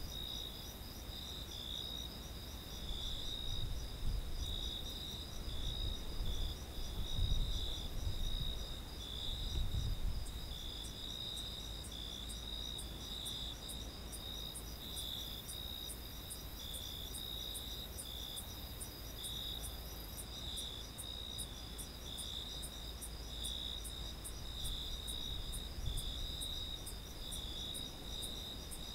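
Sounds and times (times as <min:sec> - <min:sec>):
crickets chorus: 0:00.0 - 0:28.9.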